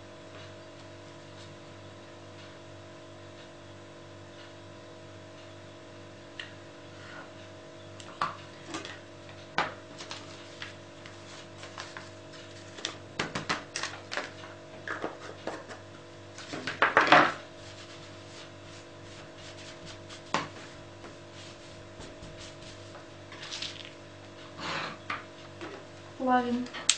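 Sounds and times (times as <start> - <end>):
steady low hum: 0.0 - 26.9
paper rustling: 10.0 - 13.0, 22.4 - 23.9.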